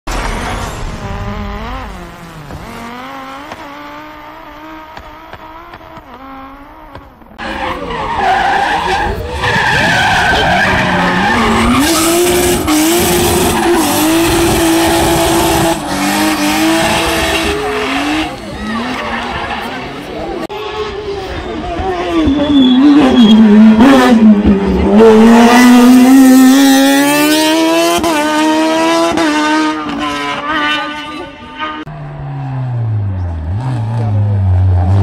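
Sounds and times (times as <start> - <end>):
race car engines revving: 0.1 - 35.0
tyres squealing and skidding: 6.9 - 24.1.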